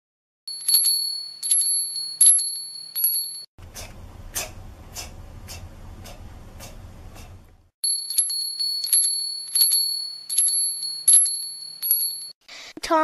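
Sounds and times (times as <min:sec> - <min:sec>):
child repeating letter sound: 0:12.8 - 0:13.0.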